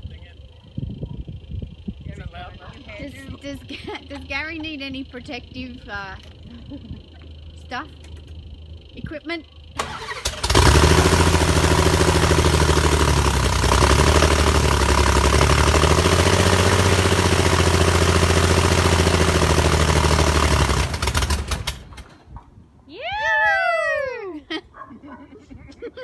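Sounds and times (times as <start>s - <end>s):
aircraft engine running: 0.0s - 22.1s
propeller coasting to a stop: 0.0s - 22.5s.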